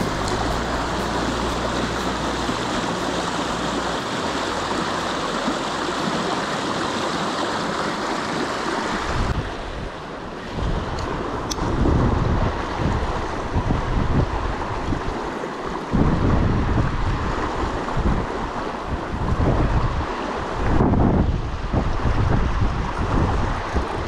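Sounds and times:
stream rushing over rocks: 0.0 - 24.0
wind buffeting microphone: 8.2 - 24.0.

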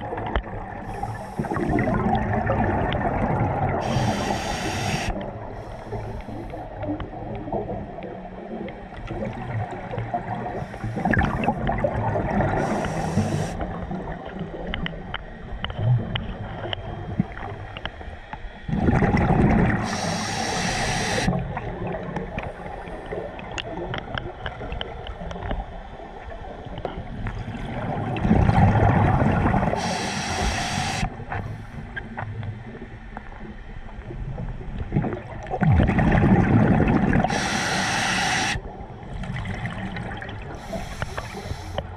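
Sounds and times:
diver's air bubbles gurgling: 0.0 - 17.8, 18.7 - 25.7, 26.6 - 31.4, 32.1 - 41.7.

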